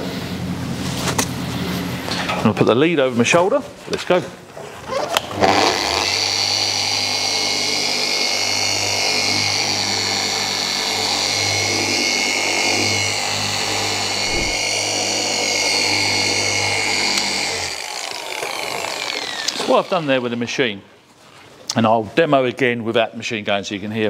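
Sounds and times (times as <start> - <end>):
car polisher running: 5.4 - 20.4.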